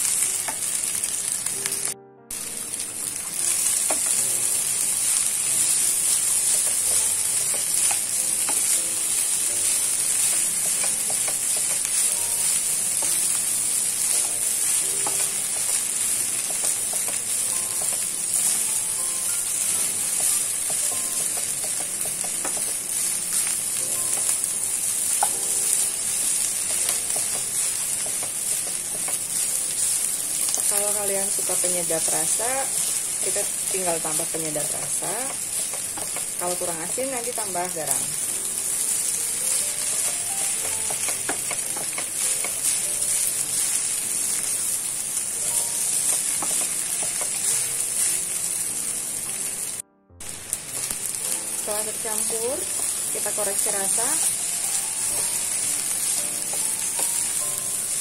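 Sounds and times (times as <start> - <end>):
rice sizzling in frying pan: 0.0 - 58.0
spatula knocking and scraping pan: 9.6 - 13.4, 39.6 - 43.9, 46.0 - 47.6
spatula scraping and tapping pan: 9.6 - 13.4, 14.1 - 18.7, 19.6 - 22.8, 25.2 - 29.8, 34.8 - 36.4, 39.6 - 44.5, 45.8 - 48.1.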